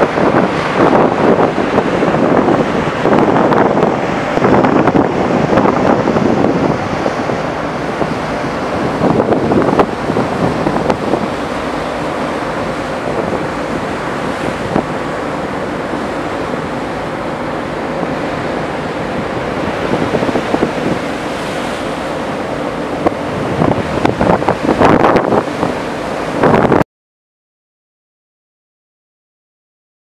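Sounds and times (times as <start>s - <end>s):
sea rushing: 0.0s - 26.8s
wind buffeting microphone: 0.0s - 26.8s.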